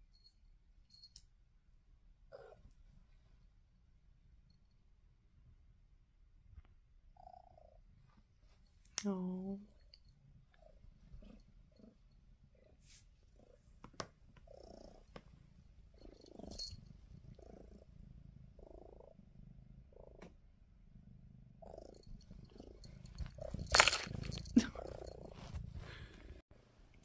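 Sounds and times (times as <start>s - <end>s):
cat purring: 2.3s - 3.6s, 6.4s - 8.6s, 9.5s - 26.4s
rustling close to microphone: 22.1s - 26.4s.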